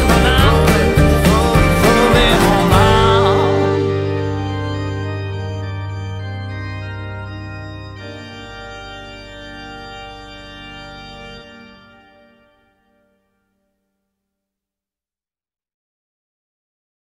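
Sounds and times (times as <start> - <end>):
music final chord held: 0.0 - 13.1.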